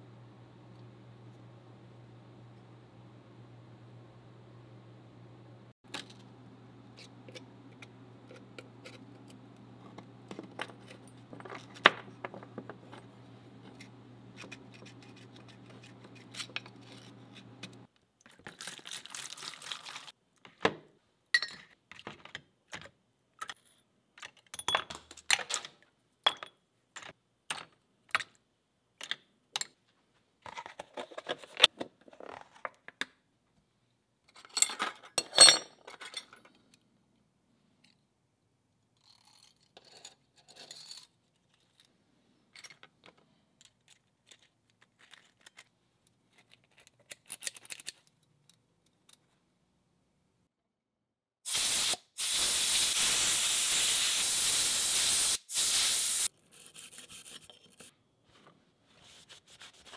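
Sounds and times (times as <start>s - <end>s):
metal parts and tools clinking: 34.3s - 36.7s.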